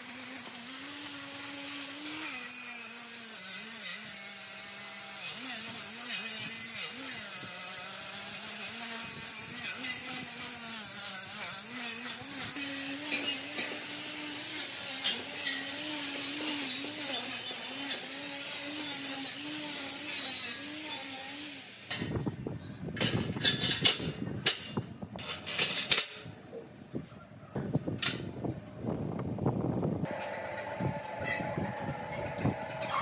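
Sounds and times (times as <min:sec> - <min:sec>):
power tool whining: 0:00.0 - 0:22.2, 0:30.0 - 0:33.0.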